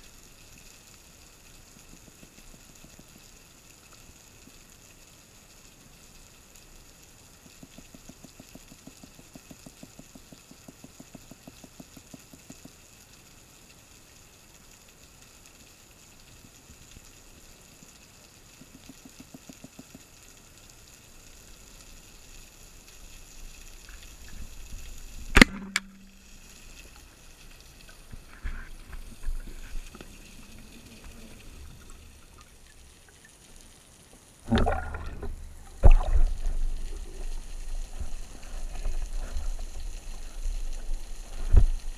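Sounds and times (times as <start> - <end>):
sharp underwater click: 25.2 - 27.1.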